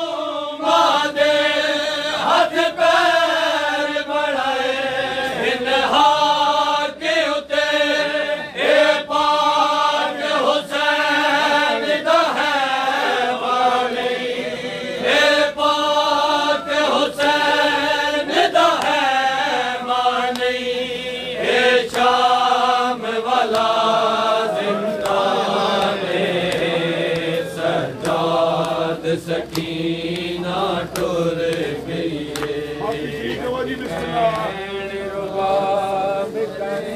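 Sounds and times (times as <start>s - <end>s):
men chanting a lament: 0.0s - 36.9s
hand slaps on chests: 18.3s - 19.2s, 20.2s - 20.7s, 21.7s - 22.4s, 23.4s - 24.1s, 24.9s - 34.6s.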